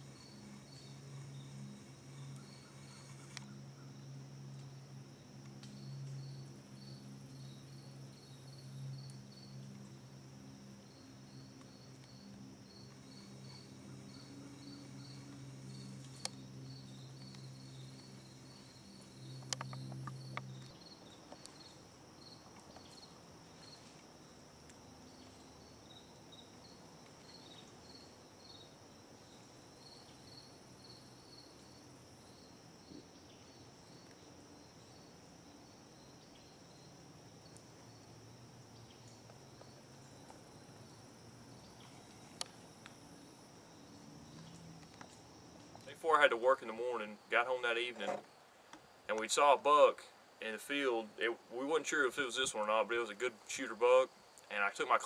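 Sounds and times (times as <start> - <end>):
crickets chirping: 0.0 - 55.0
high insect buzz: 0.0 - 55.0.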